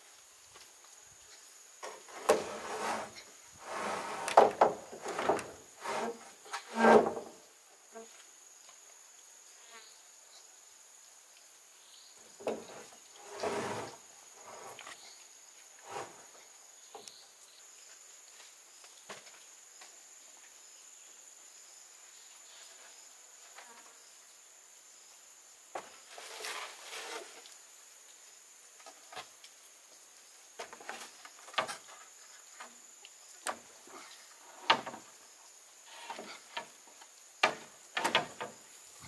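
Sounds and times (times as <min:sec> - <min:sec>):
crickets trilling: 0:00.1 - 0:39.0
knocks and scrapes of handling: 0:01.8 - 0:07.4, 0:12.4 - 0:15.0, 0:15.8 - 0:16.4, 0:25.8 - 0:27.6, 0:30.6 - 0:32.8, 0:35.9 - 0:38.6.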